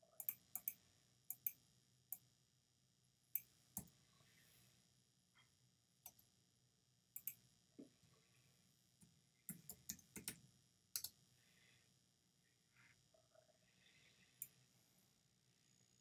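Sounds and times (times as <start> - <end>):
computer keyboard keystrokes: 9.5 - 10.4.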